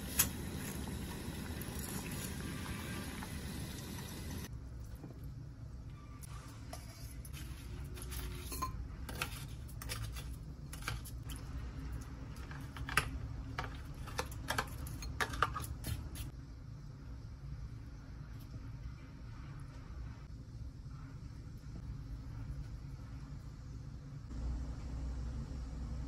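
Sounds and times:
kitchenware clinking: 0:08.0 - 0:11.0, 0:13.6 - 0:16.0.

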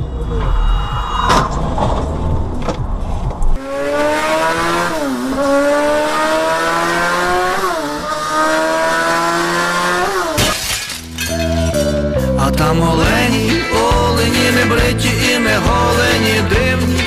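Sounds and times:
low road rumble: 0:00.0 - 0:17.0
engine accelerating hard: 0:03.5 - 0:10.4.

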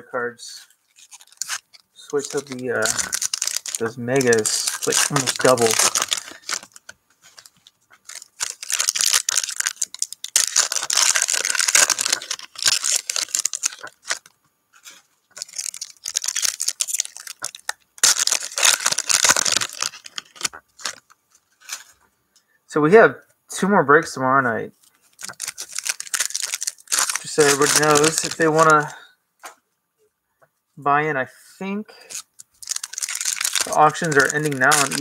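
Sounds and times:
foil wrappers crinkling and tearing: 0:00.7 - 0:22.0, 0:24.8 - 0:29.0, 0:32.0 - 0:35.0
cards being handled: 0:01.0 - 0:21.9, 0:25.2 - 0:28.9, 0:32.1 - 0:35.0.

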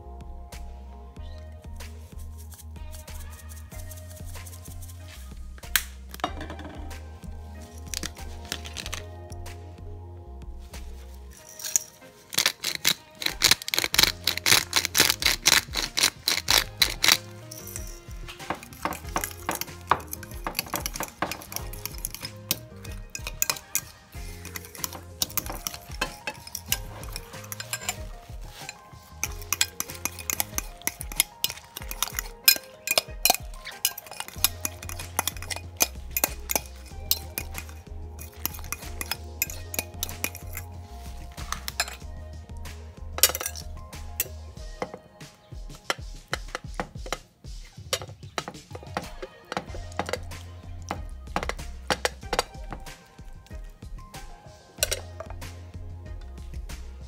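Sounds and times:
background music with bass line: 0:00.0 - 0:57.0
metal utensil clinking against dish: 0:11.4 - 0:42.1, 0:43.2 - 0:45.1, 0:45.8 - 0:47.2, 0:47.8 - 0:53.6, 0:54.7 - 0:55.4.

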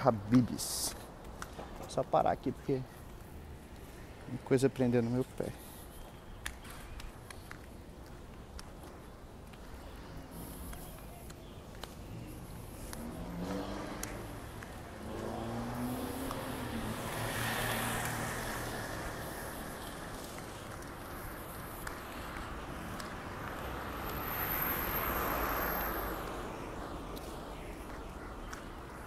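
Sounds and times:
road noise: 0:00.0 - 0:29.0
vehicle passing: 0:11.8 - 0:29.0
car accelerating past: 0:13.0 - 0:19.7.

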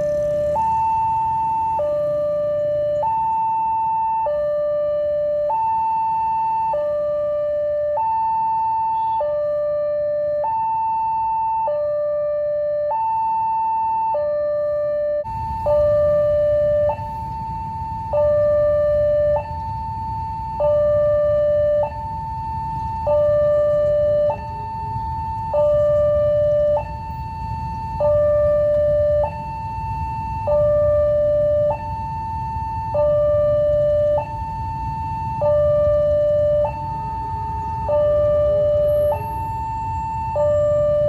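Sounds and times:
level crossing two-tone alarm: 0:00.0 - 0:41.0.

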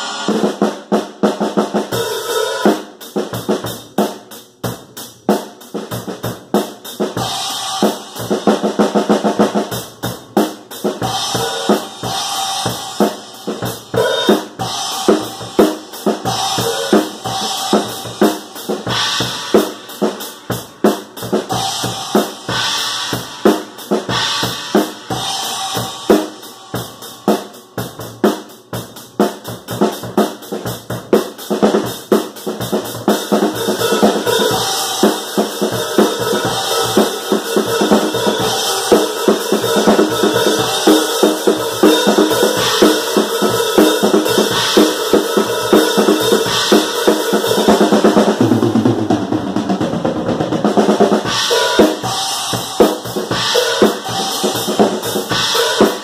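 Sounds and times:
bass drum: 0:39.8 - 0:56.0.

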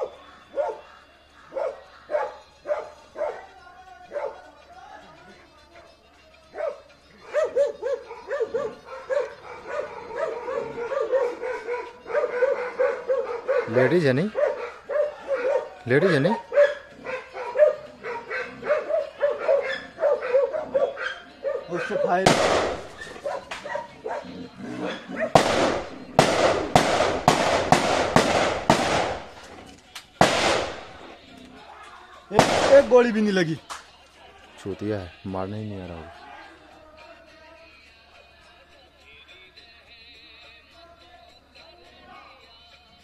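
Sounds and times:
dog barking: 0:00.0 - 0:04.6, 0:06.5 - 0:25.4
loud sharp bangs with echo: 0:22.2 - 0:23.0, 0:25.3 - 0:29.5, 0:30.2 - 0:31.0, 0:32.3 - 0:33.1.

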